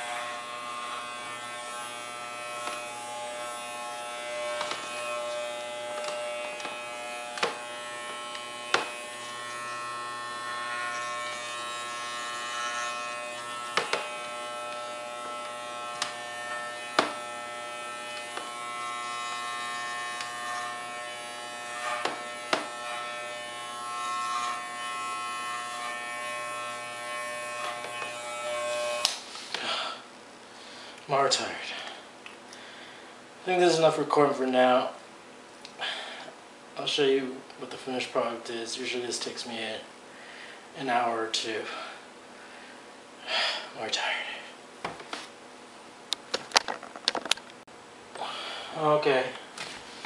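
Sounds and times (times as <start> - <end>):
pet clipper buzzing: 0.0 - 30.0.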